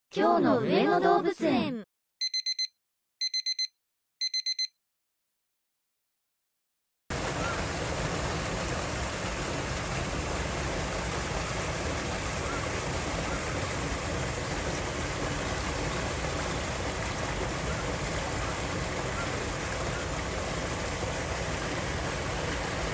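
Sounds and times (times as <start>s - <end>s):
electronic beeps: 2.2s - 4.7s
water rushing: 7.1s - 22.9s.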